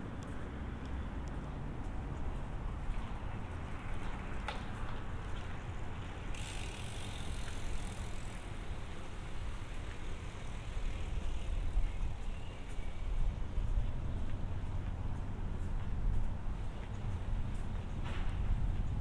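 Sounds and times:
low rumble of traffic: 0.0s - 19.0s
vehicle passing with hiss: 3.1s - 15.4s.

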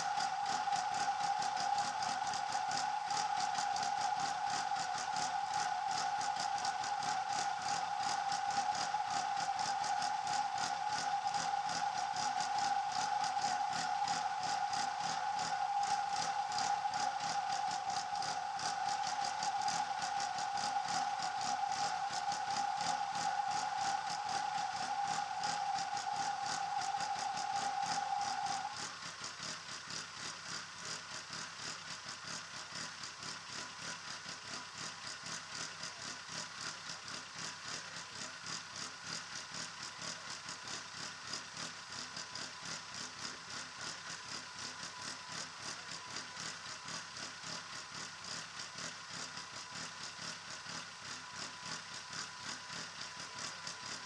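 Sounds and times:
high whine with fast ticking: 0.0s - 31.2s, 43.8s - 54.0s.

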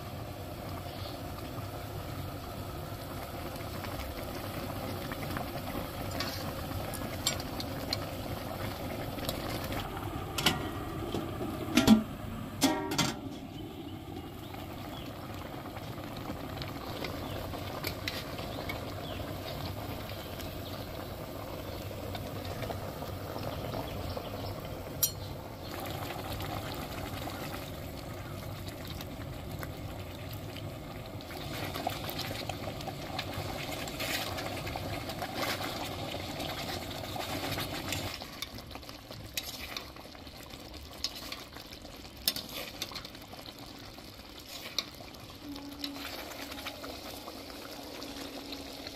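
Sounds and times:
sauce bubbling in a wok: 0.0s - 48.9s
utensil clicking against wok: 25.0s - 25.3s, 41.0s - 41.5s, 42.2s - 43.1s.

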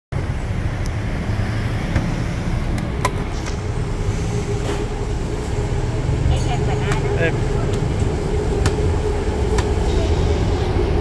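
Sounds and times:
road traffic rumble: 0.1s - 11.0s
steady hum: 2.2s - 11.0s.

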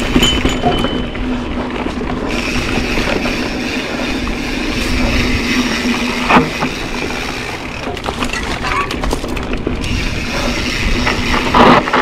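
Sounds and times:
bike tyre and wind rumble: 0.0s - 12.0s
freehub ratcheting buzz: 9.8s - 12.0s.

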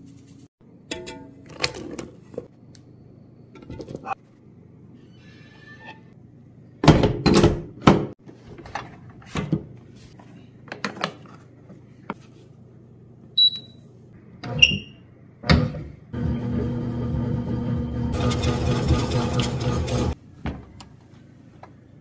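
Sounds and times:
short electronic beeps: 13.4s - 13.8s.

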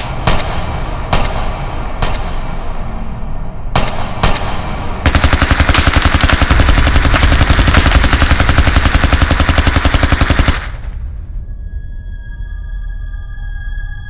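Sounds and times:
automatic gunfire: 3.8s - 11.0s.

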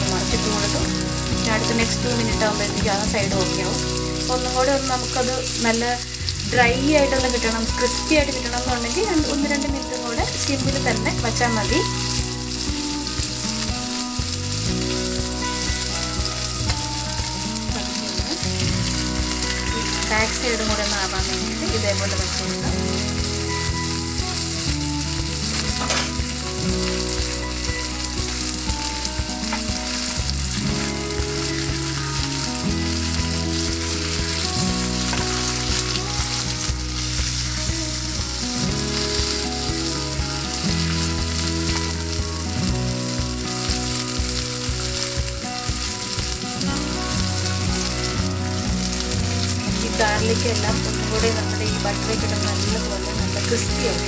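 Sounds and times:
fish sizzling in a pan: 0.0s - 54.0s.

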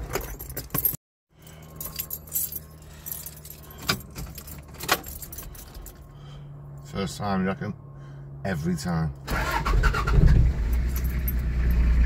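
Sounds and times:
car keys jangling: 0.0s - 6.1s, 10.7s - 11.8s.

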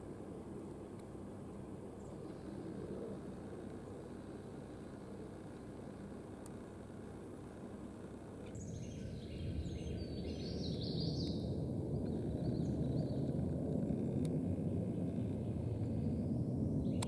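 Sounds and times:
small songbird singing: 8.5s - 13.4s, 14.9s - 17.0s
low rumble: 8.6s - 17.0s.

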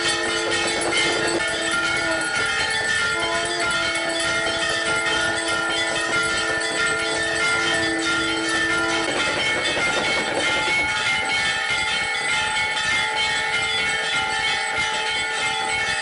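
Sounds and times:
conch shell blasts: 0.0s - 9.4s
bells clanging: 0.0s - 16.0s.

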